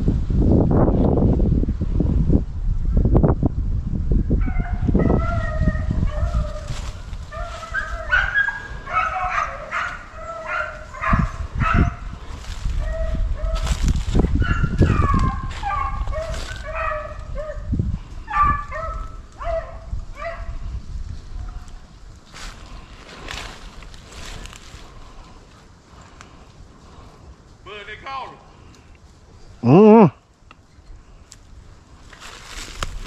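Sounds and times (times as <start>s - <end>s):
wind buffeting microphone: 0.0s - 27.6s, 30.7s - 33.0s
dogs baying: 4.4s - 17.7s, 18.3s - 20.5s.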